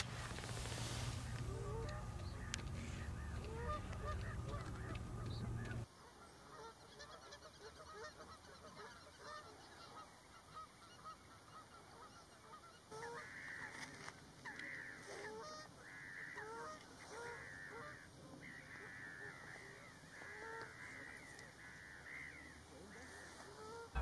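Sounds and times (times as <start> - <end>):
steady low rumble: 0.0 - 5.8
flock of birds calling: 0.0 - 24.0.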